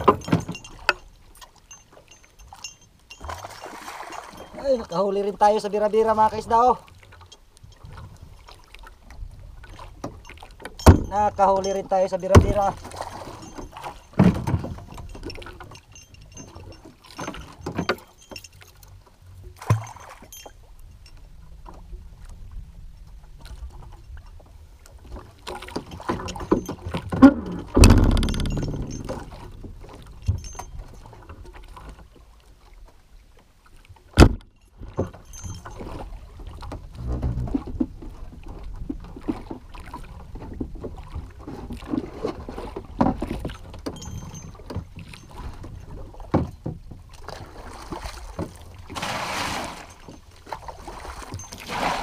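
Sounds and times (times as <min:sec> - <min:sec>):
water lapping against hull: 0:00.0 - 0:52.0
wind: 0:00.0 - 0:52.0
knocks on wooden boat: 0:26.6 - 0:29.3, 0:34.2 - 0:34.4.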